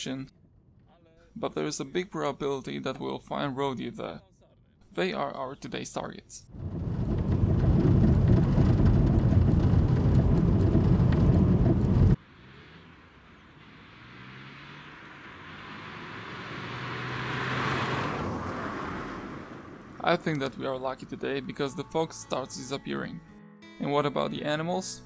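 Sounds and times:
small rattles: 0:06.5 - 0:12.2
car cabin road rumble: 0:06.5 - 0:15.6
passing vehicle: 0:06.5 - 0:21.5.

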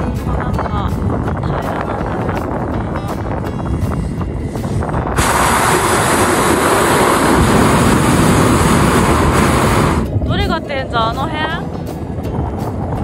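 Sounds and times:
propane burner roaring: 0:04.4 - 0:13.0.

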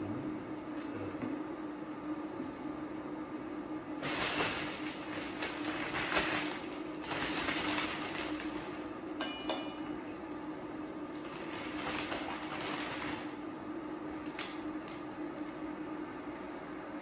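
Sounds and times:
plastic bag crinkling: 0:04.0 - 0:08.8, 0:11.2 - 0:13.3.

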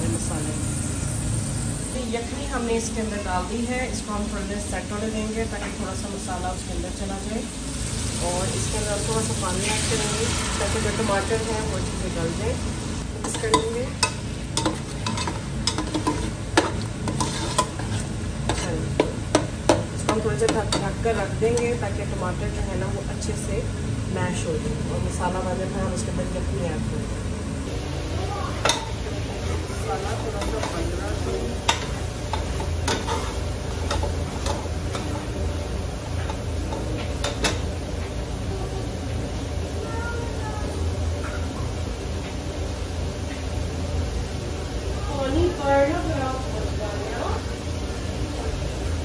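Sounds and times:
sizzling pot: 0:00.0 - 0:24.0, 0:27.6 - 0:49.0
steady low hum: 0:00.0 - 0:49.0
metal spoon scraping a pot: 0:13.3 - 0:19.1, 0:31.7 - 0:35.2.

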